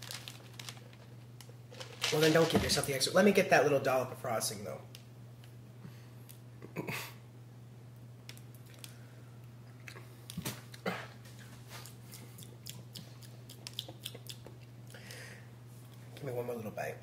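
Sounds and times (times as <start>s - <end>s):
person chewing wet smacks: 11.4s - 15.0s.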